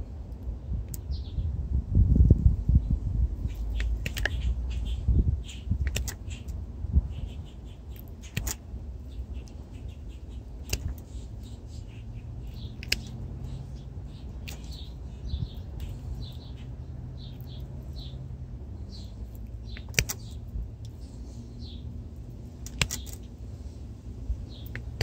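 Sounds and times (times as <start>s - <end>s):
small birds chirping: 0.4s - 25.0s.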